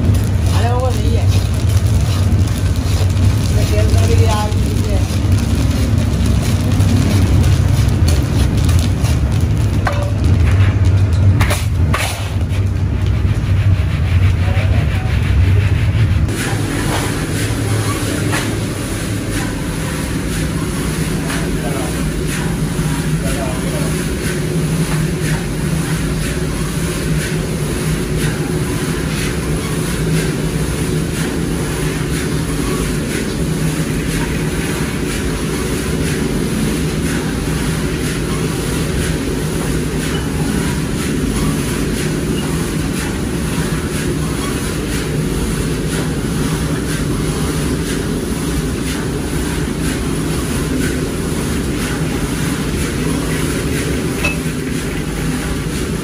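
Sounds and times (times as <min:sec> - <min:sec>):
chickpeas rattling in sieve: 0:00.0 - 0:09.8
low mechanical rumble: 0:00.0 - 0:56.0.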